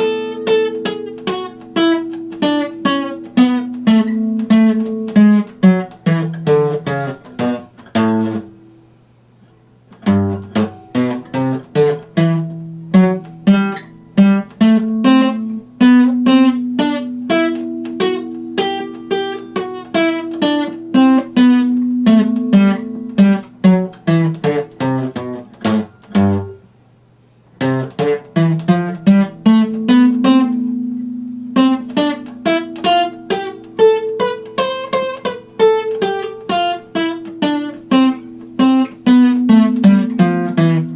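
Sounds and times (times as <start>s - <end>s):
acoustic guitar plucking: 0.0s - 26.8s, 27.5s - 40.9s.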